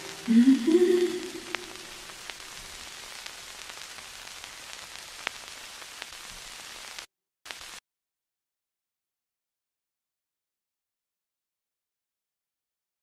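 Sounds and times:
steady hiss: 0:00.0 - 0:07.8.

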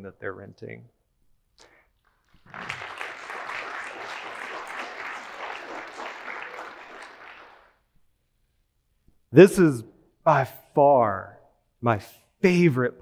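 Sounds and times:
audience applauding: 0:02.3 - 0:07.8.

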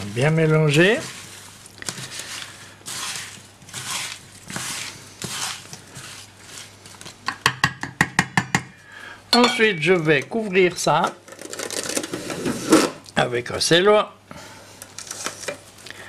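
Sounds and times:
wet gritty stirring swish: 0:00.0 - 0:07.2.

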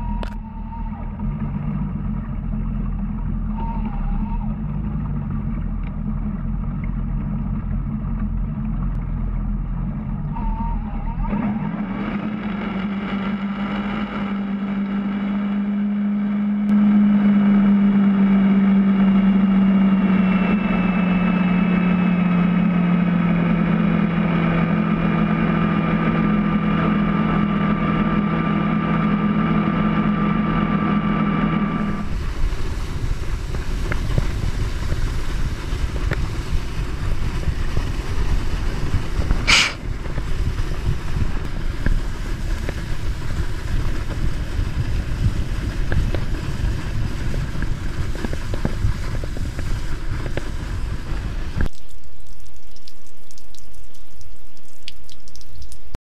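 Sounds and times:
boat engine humming: 0:00.0 - 0:51.8
wake wash: 0:00.0 - 0:56.0
wind and water spray rushing: 0:31.6 - 0:53.4.

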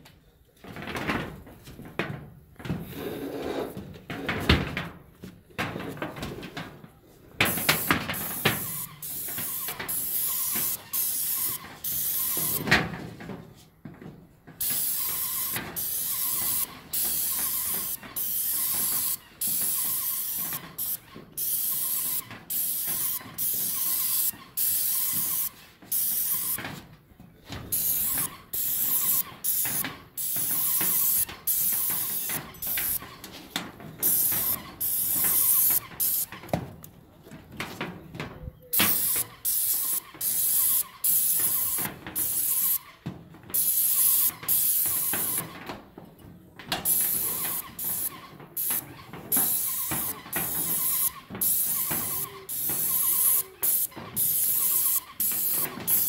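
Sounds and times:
paint spray gun hissing: 0:07.5 - 0:12.6, 0:14.6 - 0:26.6, 0:27.7 - 0:33.0, 0:34.0 - 0:36.3, 0:38.8 - 0:42.9, 0:43.6 - 0:45.5, 0:46.8 - 0:56.0.

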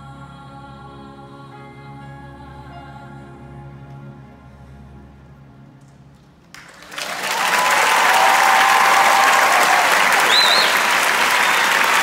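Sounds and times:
audience applause and cheering: 0:06.5 - 0:12.0
person whistling: 0:10.2 - 0:11.8.

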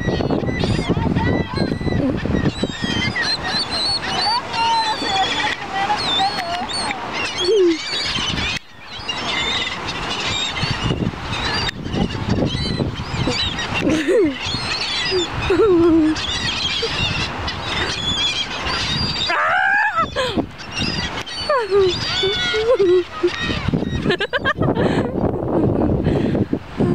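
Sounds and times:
gulls calling: 0:00.0 - 0:26.3.

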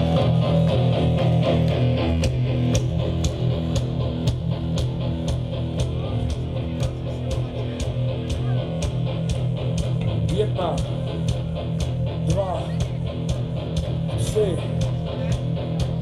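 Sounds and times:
electric guitar chords: 0:00.0 - 0:16.0
steady drum beat: 0:00.0 - 0:16.0.

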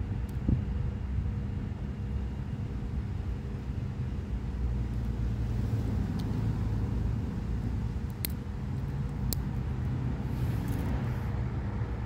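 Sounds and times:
road traffic rumble: 0:00.0 - 0:12.0
pocket knife tools snapping shut: 0:08.1 - 0:08.4.

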